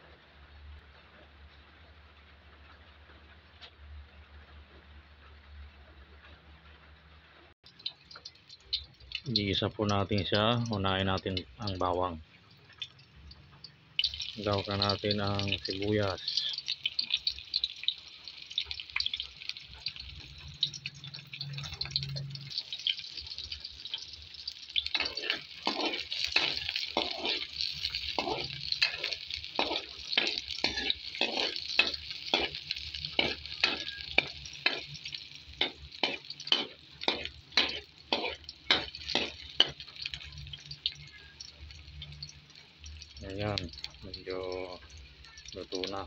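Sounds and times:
garlic and onion sizzling in oil: 7.6 - 46.0
spatula scraping a wok: 24.8 - 40.4.

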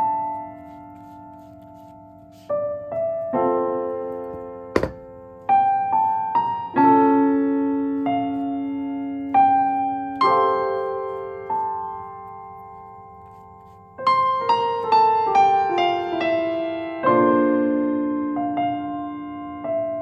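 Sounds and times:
slow piano music: 0.0 - 20.0
sharp knock: 4.8 - 5.1.

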